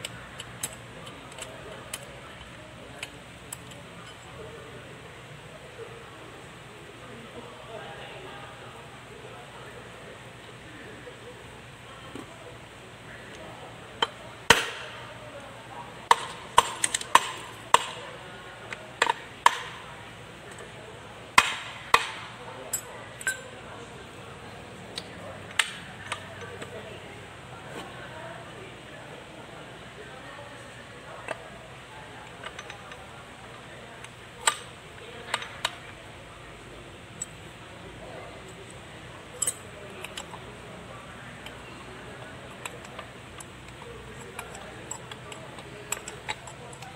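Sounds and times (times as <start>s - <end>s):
metal gears clicking: 0.0s - 4.2s, 39.4s - 40.4s.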